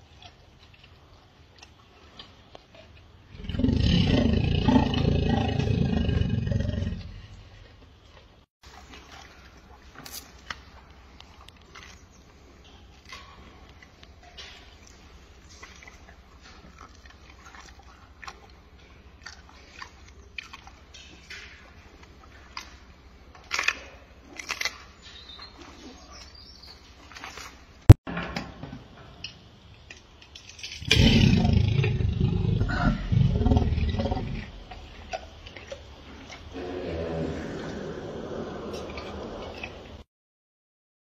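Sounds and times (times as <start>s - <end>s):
gorilla chewing: 9.9s - 26.3s
rough low sound: 30.8s - 35.2s.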